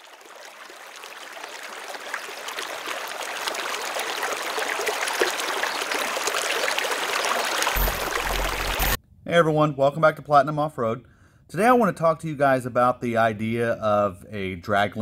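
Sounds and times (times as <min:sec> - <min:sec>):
water pouring over rock ledge: 0:00.0 - 0:09.0.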